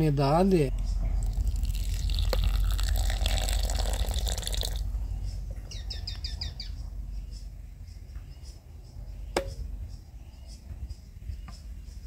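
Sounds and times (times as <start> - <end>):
bird chirping: 0.0 - 2.5, 4.6 - 12.0
hot water pouring into gourd: 1.2 - 4.8.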